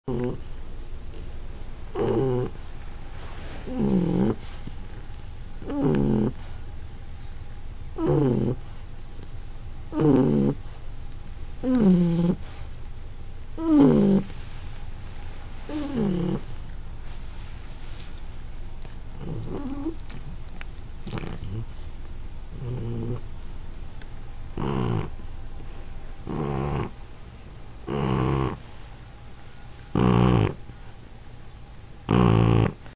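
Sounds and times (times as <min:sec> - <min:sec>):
dog snoring: 0:00.1 - 0:00.4, 0:01.9 - 0:02.7, 0:03.6 - 0:07.4, 0:08.0 - 0:11.0, 0:11.6 - 0:12.8, 0:13.6 - 0:14.4, 0:15.7 - 0:16.8, 0:18.8 - 0:23.5, 0:24.5 - 0:25.3, 0:26.2 - 0:27.0, 0:27.8 - 0:28.7, 0:29.9 - 0:31.4, 0:32.0 - 0:32.9.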